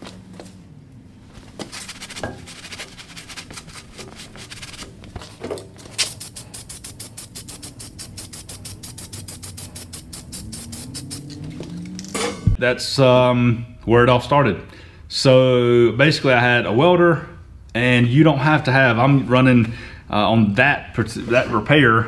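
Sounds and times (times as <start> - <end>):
spray can hissing: 1.6 - 4.9, 6.0 - 11.9
spray can rattling clicks: 6.0 - 12.1.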